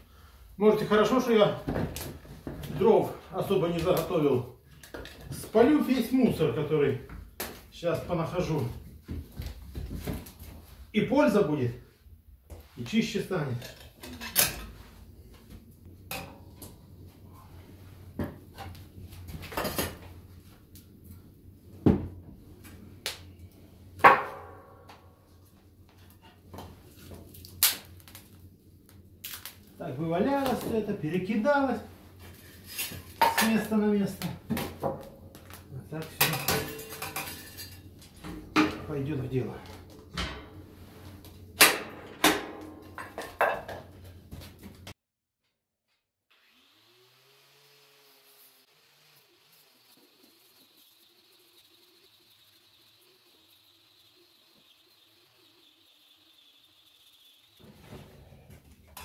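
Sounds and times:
ringing metallic clang: 0:36.2 - 0:37.6.

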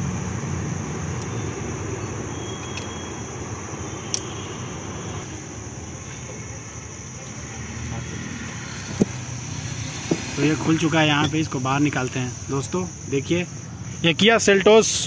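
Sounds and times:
constant high hiss: 0:00.0 - 0:15.0
light metallic clicks: 0:04.0 - 0:04.4.

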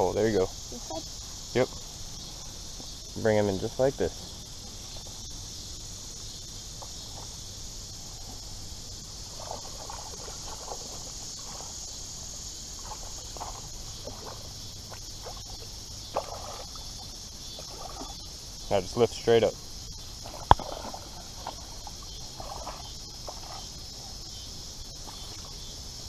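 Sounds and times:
crickets chirping: 0:00.0 - 0:26.0
water splashing: 0:08.1 - 0:25.7.

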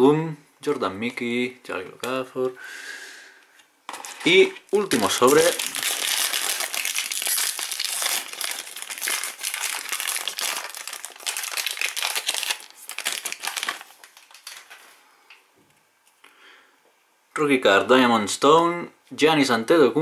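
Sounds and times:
foil wrapper crinkling: 0:03.9 - 0:15.0.

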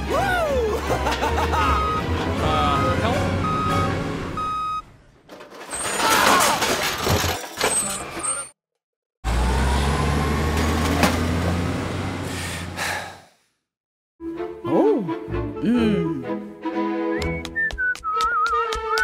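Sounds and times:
reversing beep: 0:01.8 - 0:02.1, 0:03.4 - 0:04.8
debris rattling and crashing: 0:05.2 - 0:08.2.

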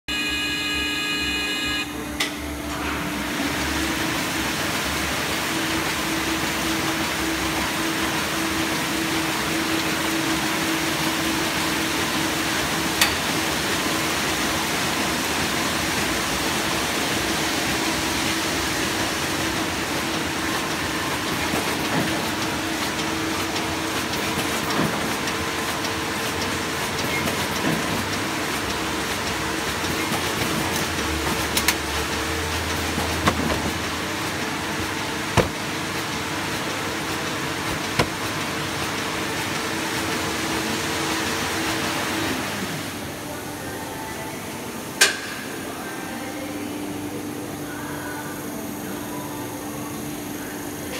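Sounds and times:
short held tone: 0:00.1 - 0:02.2
machine whirring and humming: 0:00.1 - 0:50.9.

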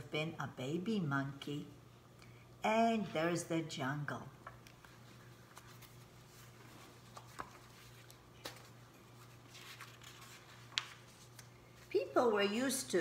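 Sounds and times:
low steady hum: 0:00.0 - 0:13.0
paper rustling and shuffling: 0:04.4 - 0:12.1.

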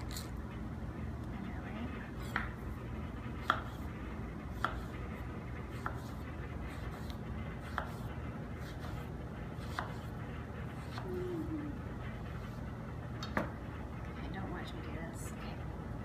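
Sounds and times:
low background hum: 0:00.0 - 0:16.0
knife slicing peaches: 0:02.2 - 0:02.6, 0:03.4 - 0:03.9, 0:04.5 - 0:05.0, 0:05.7 - 0:10.1, 0:10.8 - 0:11.2.

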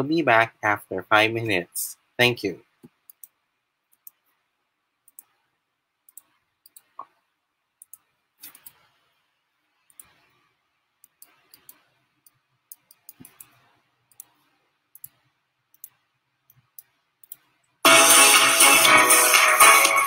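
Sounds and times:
computer clicks: 0:02.9 - 0:04.2, 0:05.1 - 0:05.4, 0:06.1 - 0:07.2, 0:07.8 - 0:08.8, 0:11.0 - 0:17.5
intro music with light percussion: 0:17.9 - 0:20.0.

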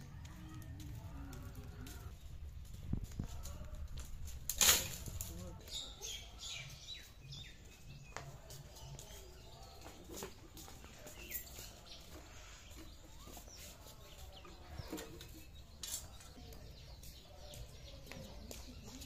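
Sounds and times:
birds chirping: 0:05.3 - 0:19.0.

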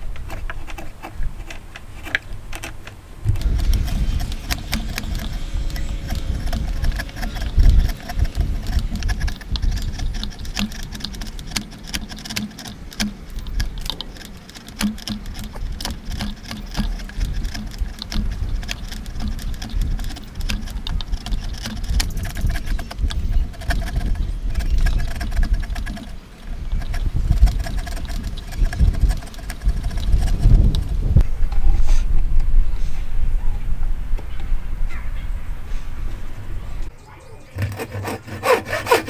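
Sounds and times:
chisel scraping wood: 0:00.0 - 0:31.1, 0:37.6 - 0:39.0
low rumble: 0:03.2 - 0:10.6.

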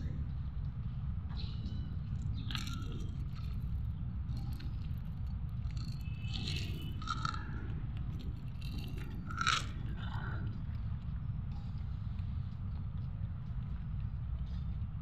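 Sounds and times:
steady low rumble: 0:00.0 - 0:15.0
cats crunching dry kibble: 0:02.4 - 0:10.1.

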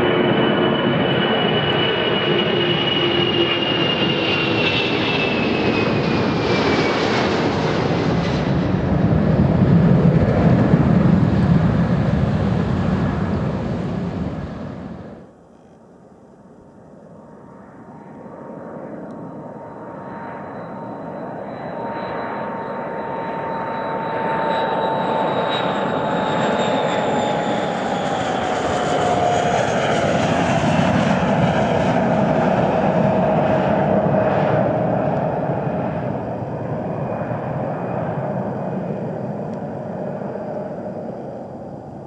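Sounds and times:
jet rumbling: 0:00.0 - 0:15.3
high jet engine whine: 0:00.0 - 0:42.0.

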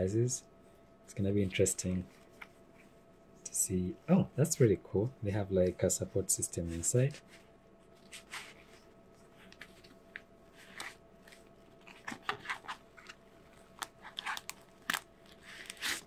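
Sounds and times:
fabric glove rustling: 0:06.6 - 0:16.0.

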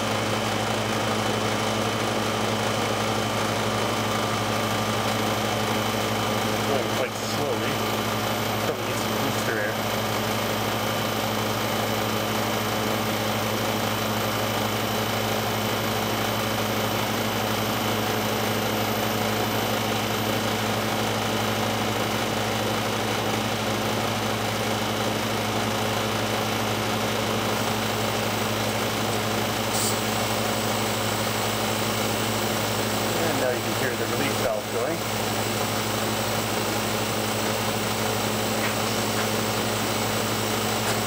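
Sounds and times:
compressor hum: 0:00.0 - 0:41.0
compressor hiss: 0:27.3 - 0:41.0.

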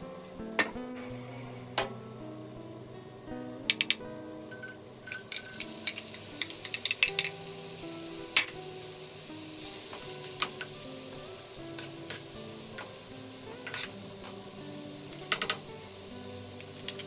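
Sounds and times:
onion sizzling in oil: 0:03.7 - 0:17.0.

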